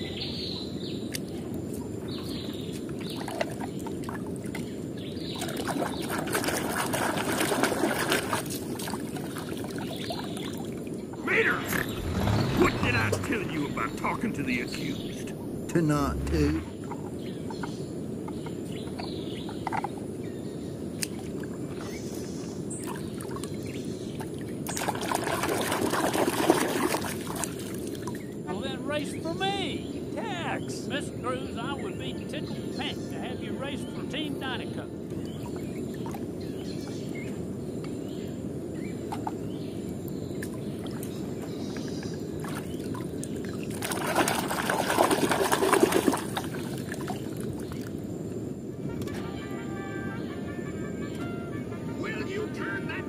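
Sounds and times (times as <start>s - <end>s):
muddy water sloshing in a tub: 2.4s - 11.0s, 22.8s - 28.3s, 40.3s - 48.0s
low background rumble: 11.0s - 17.0s.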